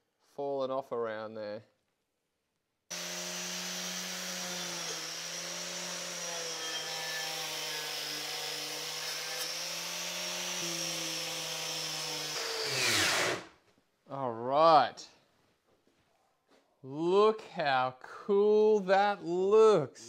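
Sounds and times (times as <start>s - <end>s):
angle grinder wire brush whine: 2.9s - 13.5s.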